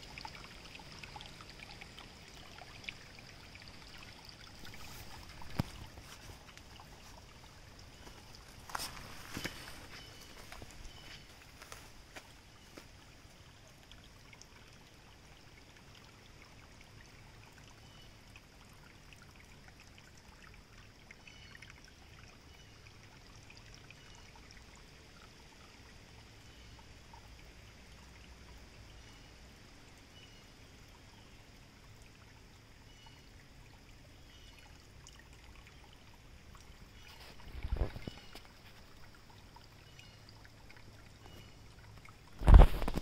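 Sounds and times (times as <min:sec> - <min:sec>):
creek water trickling: 0:00.0 - 0:43.0.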